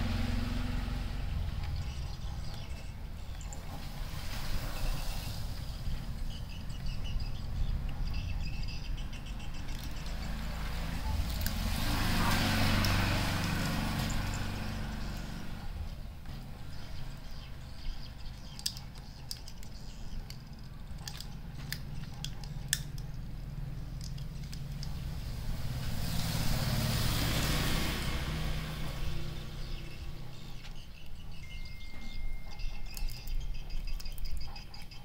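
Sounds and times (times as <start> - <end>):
kitten crunching dry kibble: 18.2 - 25.2.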